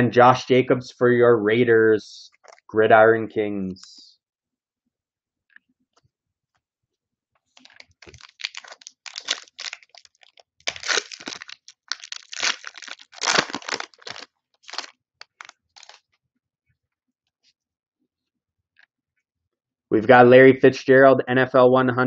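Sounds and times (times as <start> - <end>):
plastic wrapper tearing and crinkling: 7.5 - 16.1.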